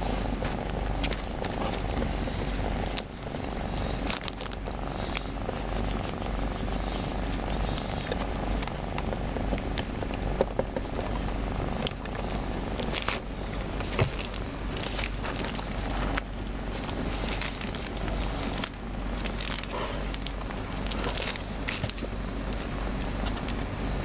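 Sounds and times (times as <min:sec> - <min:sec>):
cat purring: 0:00.1 - 0:23.3.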